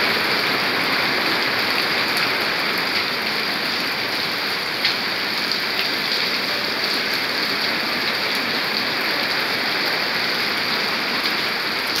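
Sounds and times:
heavy rain on wet pavement: 0.0 - 12.0.

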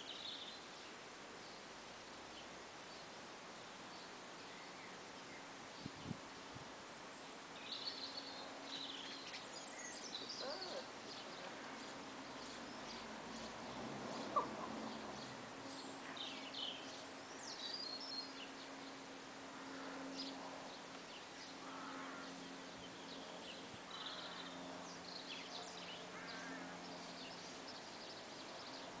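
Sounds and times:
steady low hum: 0.0 - 29.0
songbirds chirping and singing: 7.2 - 19.0, 19.6 - 29.0.

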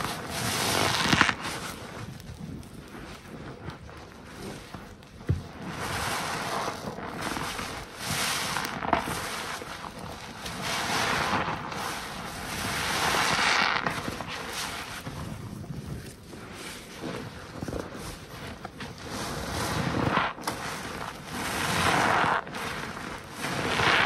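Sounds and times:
sponge squelching in foam: 5.6 - 24.0.

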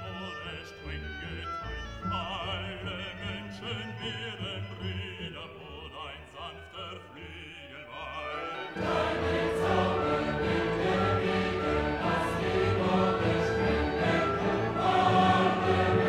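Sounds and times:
vibrato singing voice: 0.0 - 16.0
slow orchestral music: 7.9 - 16.0.

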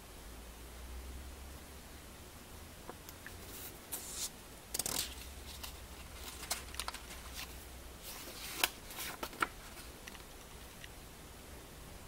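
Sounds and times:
paper rustling and page turning: 3.4 - 10.8.

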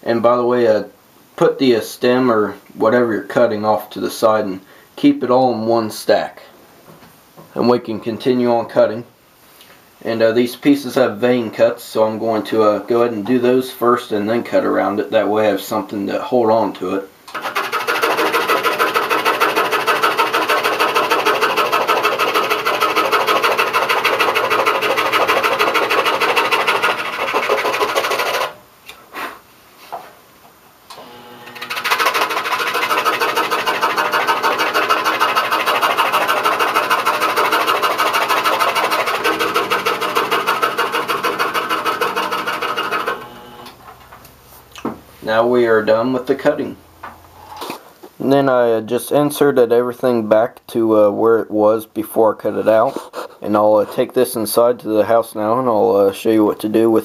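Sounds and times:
scroll saw cutting veneer: 17.3 - 28.6, 31.0 - 43.6.

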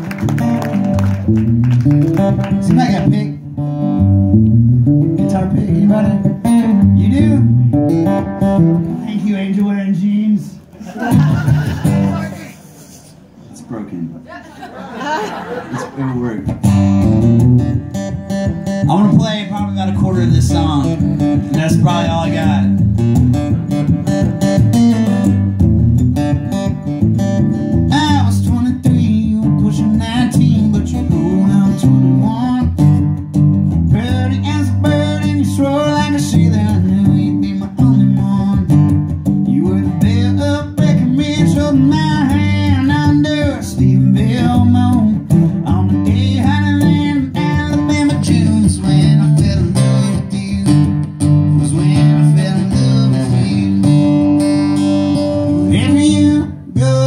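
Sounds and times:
acoustic guitar strumming: 0.0 - 10.5, 16.4 - 57.0
man singing: 2.6 - 3.5, 5.2 - 7.7, 8.8 - 10.6, 18.8 - 22.8, 27.9 - 32.9, 33.9 - 54.3, 55.4 - 57.0.

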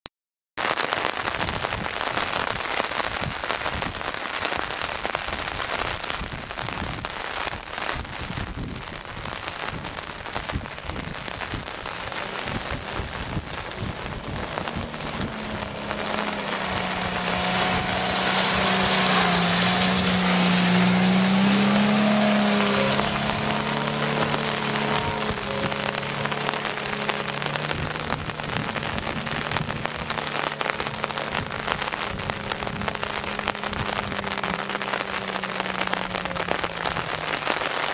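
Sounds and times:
steady crackling hiss: 0.6 - 37.9
car engine driving past: 11.2 - 32.0.

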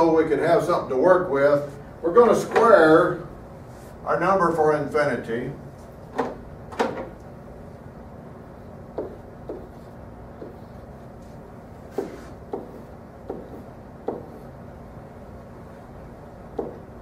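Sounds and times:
faint room hum: 0.0 - 17.0
pen writing on whiteboard: 8.6 - 14.6, 16.5 - 16.9.

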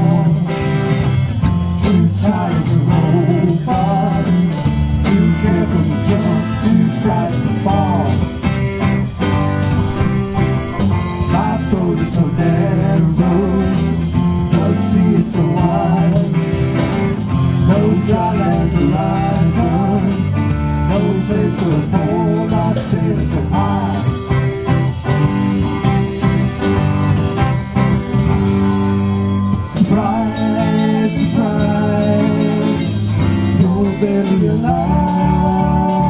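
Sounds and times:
acoustic guitar: 0.0 - 36.0
bass guitar: 0.0 - 36.0
drums: 0.0 - 36.0
electric guitar bending lead: 0.0 - 36.0.

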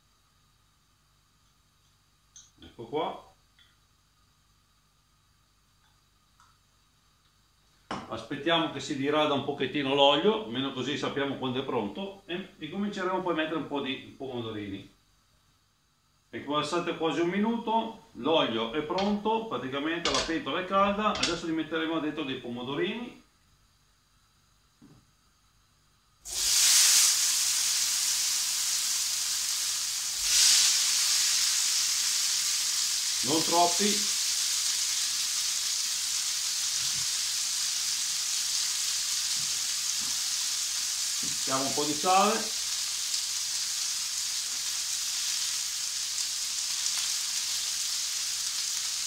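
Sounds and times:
tomatoes sizzling in hot oil: 26.2 - 49.0.

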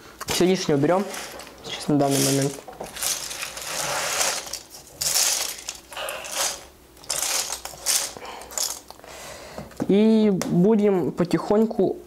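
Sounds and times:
plastic keycaps clattering: 1.2 - 9.0.

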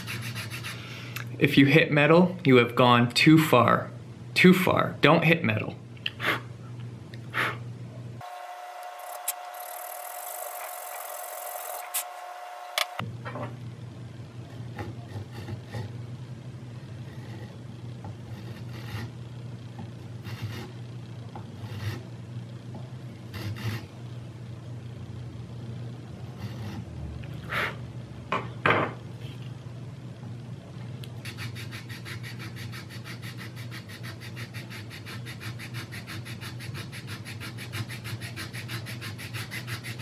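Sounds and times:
steady low hum: 0.0 - 40.0
file rasping on plastic: 14.6 - 15.9, 18.2 - 19.1, 31.3 - 40.0.

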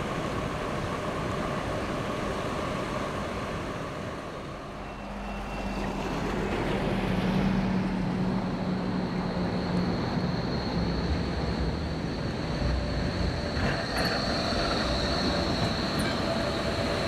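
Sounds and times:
tram low hum: 0.0 - 17.0
tram whine: 0.0 - 17.0
road traffic: 4.3 - 17.0.

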